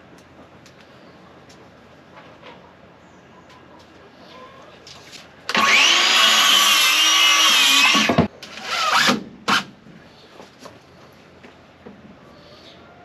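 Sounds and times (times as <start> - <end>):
power saw cutting wood: 5.5 - 9.7.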